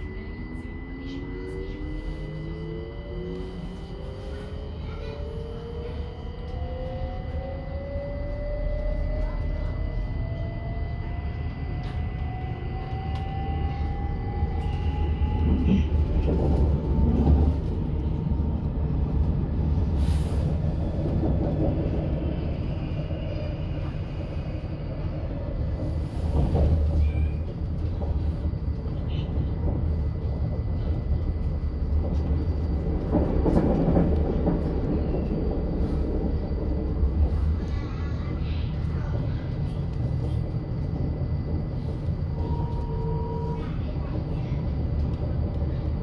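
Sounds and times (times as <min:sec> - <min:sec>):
train motor whine rising: 0:00.0 - 0:16.2
low rumble of wheels on track: 0:00.0 - 0:46.0.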